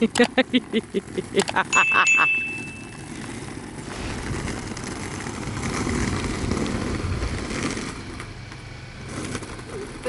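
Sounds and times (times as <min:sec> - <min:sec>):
car engine and tyre noise: 0:00.0 - 0:10.0.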